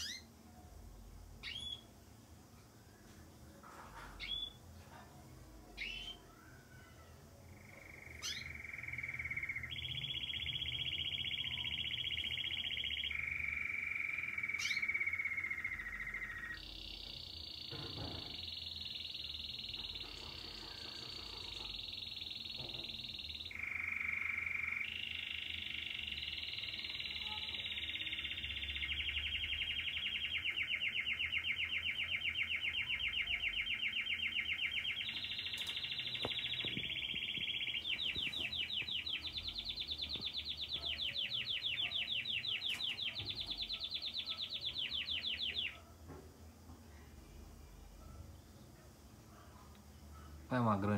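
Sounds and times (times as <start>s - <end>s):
canary singing: 0.0s - 0.5s, 1.2s - 2.0s, 3.6s - 46.1s.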